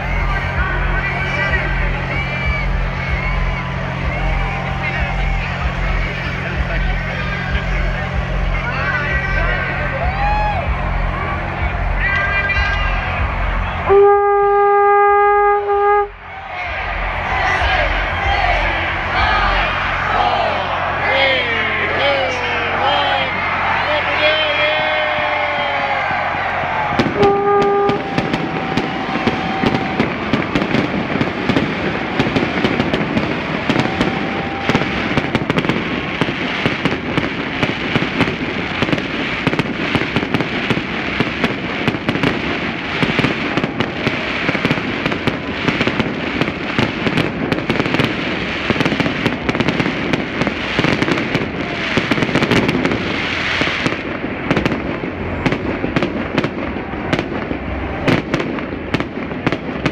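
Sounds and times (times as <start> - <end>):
fireworks crackling and bangs: 0.0 - 59.9.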